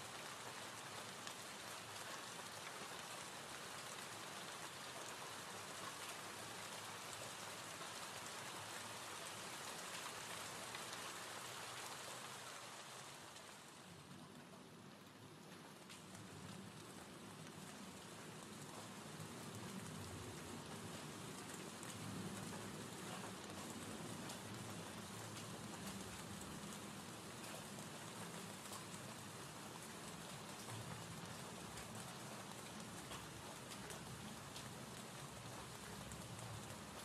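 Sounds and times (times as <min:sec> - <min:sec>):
gentle rain falling: 0:00.0 - 0:37.0
raindrop ticks: 0:15.4 - 0:37.0.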